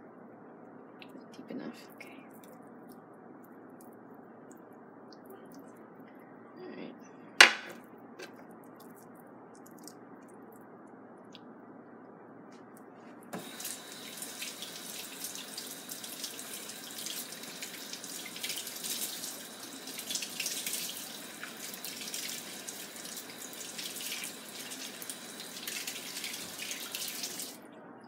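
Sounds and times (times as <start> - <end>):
water running into metal sink: 13.4 - 27.6.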